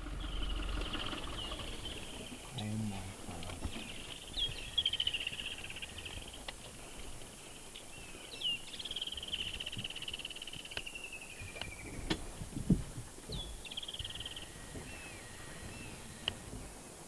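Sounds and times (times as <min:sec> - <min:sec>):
bird trilling call: 0:00.0 - 0:06.4, 0:13.3 - 0:16.5
faint clicks: 0:03.3 - 0:04.2, 0:15.6 - 0:16.4.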